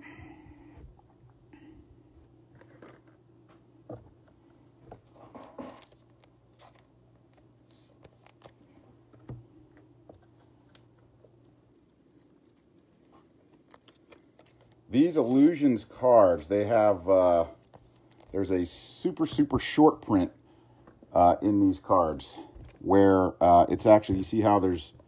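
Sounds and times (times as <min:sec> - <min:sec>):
low steady hum: 0:00.0 - 0:25.0
cards sliding into plastic sleeves: 0:13.5 - 0:15.8.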